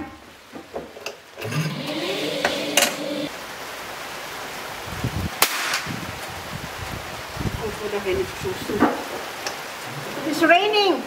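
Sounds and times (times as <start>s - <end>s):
electric motor whine with clicks: 1.4s - 3.3s
sharp crack: 5.4s - 6.0s.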